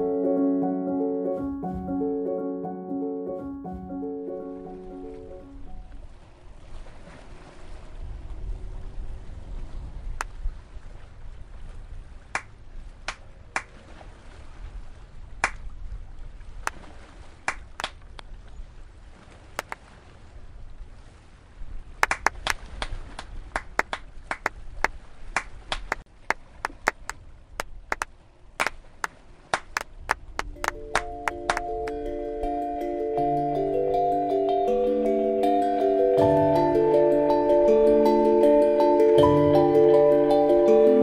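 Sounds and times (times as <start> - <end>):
sharp hand claps: 13.1 - 13.7, 17.5 - 18.0, 22.0 - 22.9, 23.6 - 24.6, 26.6 - 28.8, 29.5 - 32.0.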